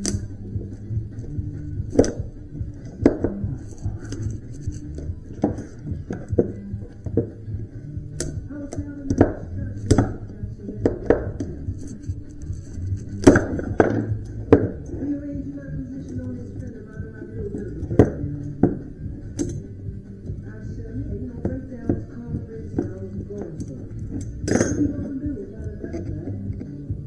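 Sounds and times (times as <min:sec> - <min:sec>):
background music: 0:00.0 - 0:27.0
tools clicking on copper: 0:08.2 - 0:14.9, 0:16.0 - 0:20.4, 0:21.4 - 0:26.7.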